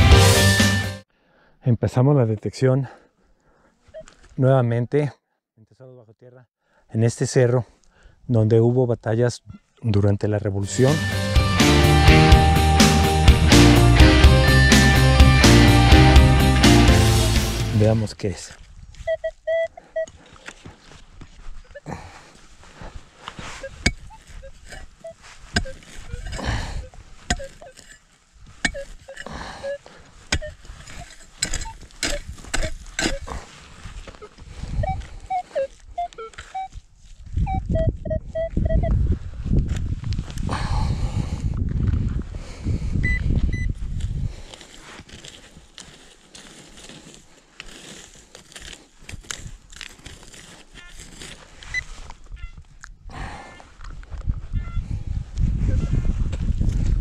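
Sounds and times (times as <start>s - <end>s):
loose dirt scraping: 10.6s - 38.8s, 43.8s - 52.5s
metal detector pinpointer beeps: 19.0s - 20.2s, 23.4s - 28.0s, 28.6s - 33.3s, 34.2s - 36.8s, 37.4s - 39.0s, 43.0s - 43.7s, 51.6s - 52.6s
hand raking through dry soil: 20.2s - 37.3s, 44.0s - 52.2s
spade striking dry soil: 23.3s - 33.5s.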